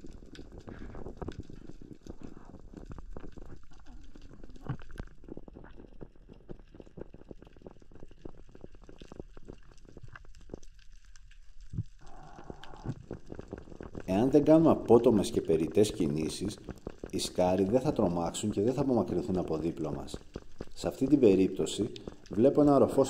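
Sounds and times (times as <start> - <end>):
dense irregular clicks underwater: 0.0 - 23.0
low rumble of moving water: 0.0 - 23.0.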